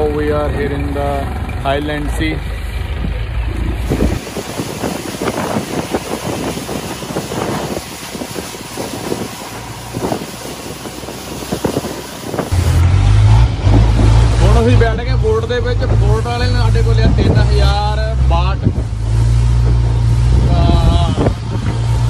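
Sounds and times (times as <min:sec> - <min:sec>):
boat engine droning: 0:00.0 - 0:22.0
water splashing past boat: 0:02.4 - 0:22.0
wind on microphone: 0:02.9 - 0:15.0, 0:15.7 - 0:22.0.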